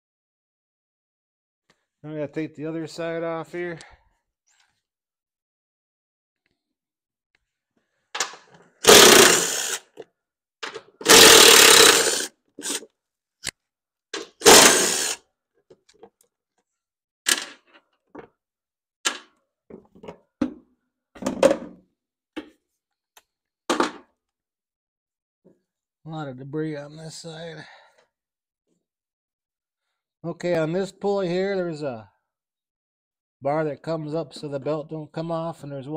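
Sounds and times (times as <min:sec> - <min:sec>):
cordless driver spinning out bolts: 0:08.8 - 0:10.0, 0:11.0 - 0:12.9, 0:14.2 - 0:15.2.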